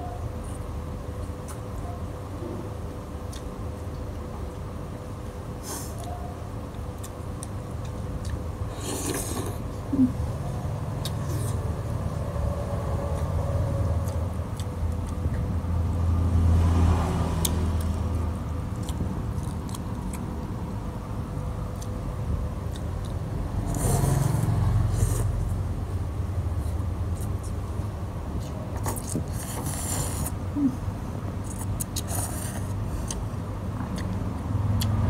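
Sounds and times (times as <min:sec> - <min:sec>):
slurping noodles: 0:08.7 - 0:09.6, 0:28.8 - 0:30.4.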